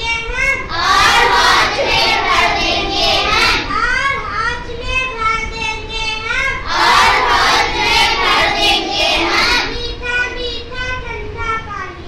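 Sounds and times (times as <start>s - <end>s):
child singing a chant: 0.0s - 12.0s
group of children singing: 0.7s - 3.7s, 6.6s - 9.8s.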